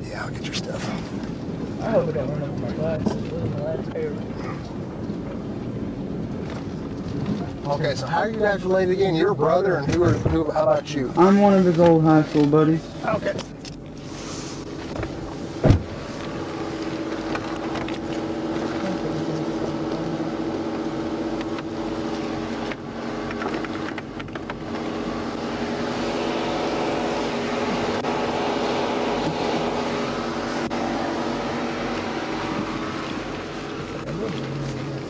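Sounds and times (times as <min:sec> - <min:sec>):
car engine idling: 0:00.0 - 0:35.0
sharp thump: 0:15.0 - 0:16.0.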